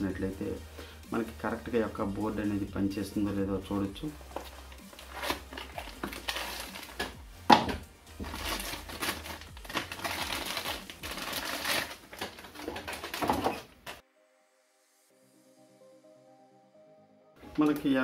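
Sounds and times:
plastic and paper packaging crinkling: 0:04.1 - 0:07.2, 0:08.2 - 0:14.0.

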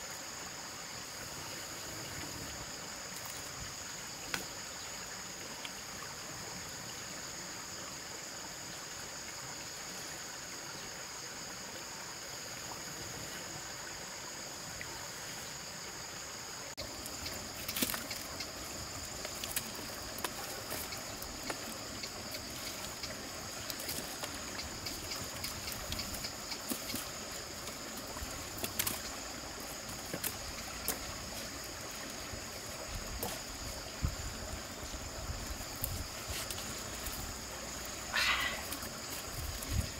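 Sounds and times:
high drone of insects: 0:00.0 - 0:39.9
stream water trickling: 0:00.0 - 0:39.9.

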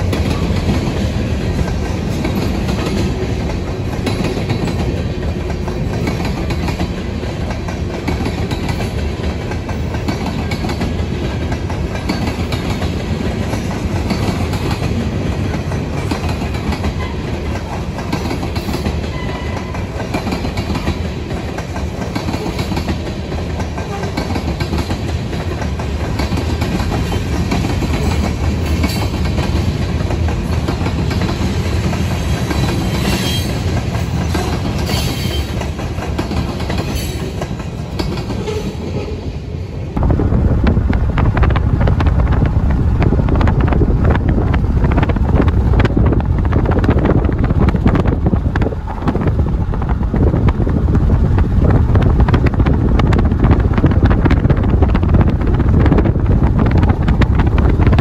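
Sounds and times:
wheels clicking over rail joints: 0:00.0 - 0:39.1
freight train cars rolling: 0:00.0 - 0:58.0
heavy low rumble: 0:40.0 - 0:58.0.

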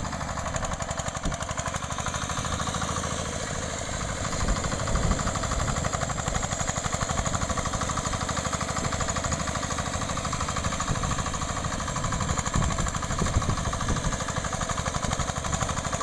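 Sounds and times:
cultivator engine running: 0:00.0 - 0:16.0
tines churning ground: 0:00.0 - 0:16.0.

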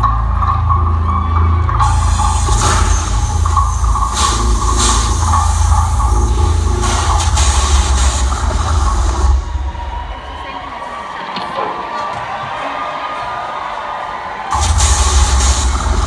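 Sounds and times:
cymbal crashes: 0:01.8 - 0:09.8, 0:14.6 - 0:16.0.

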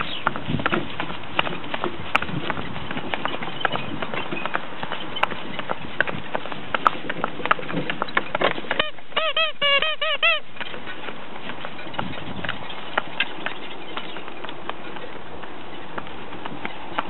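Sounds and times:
hooves clip-clopping on asphalt: 0:00.0 - 0:17.0
geese honking: 0:08.8 - 0:10.4.

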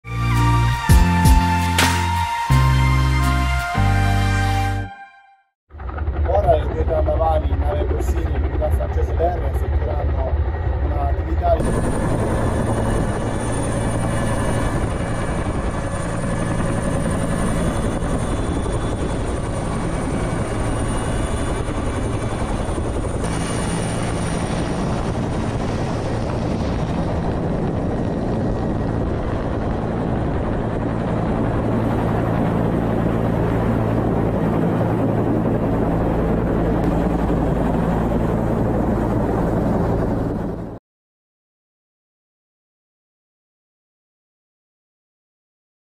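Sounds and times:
high turbine whine: 0:05.7 - 0:40.7
helicopter rotor and turbine engines: 0:05.7 - 0:40.8
heavy wind rush: 0:05.8 - 0:40.8.

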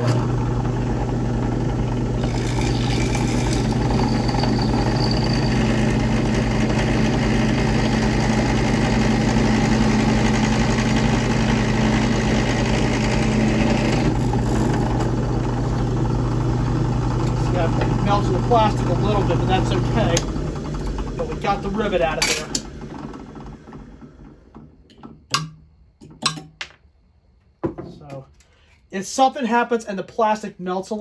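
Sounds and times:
drill press motor humming: 0:00.0 - 0:25.8
drill bit cutting metal hiss: 0:02.2 - 0:06.4.

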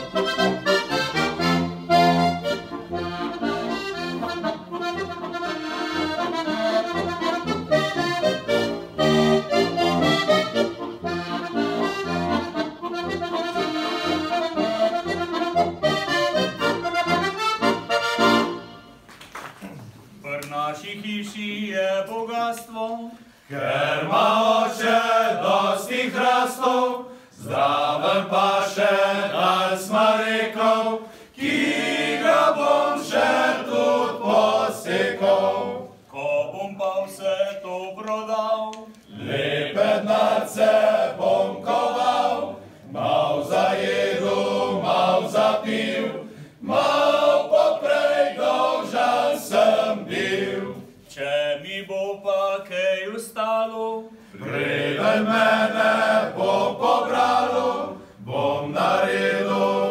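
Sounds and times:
men's vocal ensemble singing a cappella: 0:20.3 - 0:59.9.

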